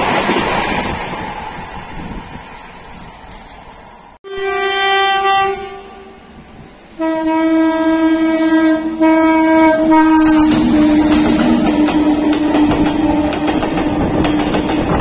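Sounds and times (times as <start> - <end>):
train rumble and wheel clatter: 0.0 - 4.2, 5.0 - 15.0
locomotive horn blasts: 4.2 - 6.3, 7.0 - 12.8.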